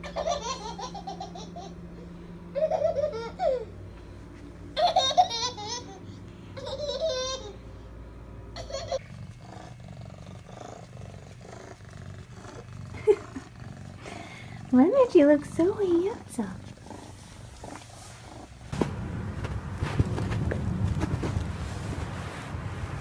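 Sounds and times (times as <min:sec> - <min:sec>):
baby laughing: 0:00.0 - 0:01.8, 0:02.5 - 0:03.7, 0:04.8 - 0:07.6, 0:08.6 - 0:09.0.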